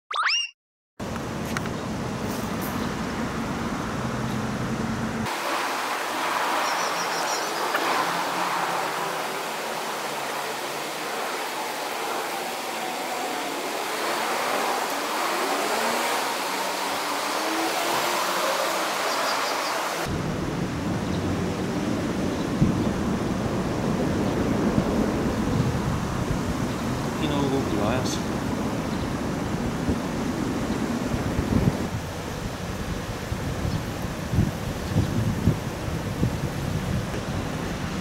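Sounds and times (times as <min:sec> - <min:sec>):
wind and water rushing: 0:01.1 - 0:38.0
wind rumble on microphone: 0:20.1 - 0:38.0.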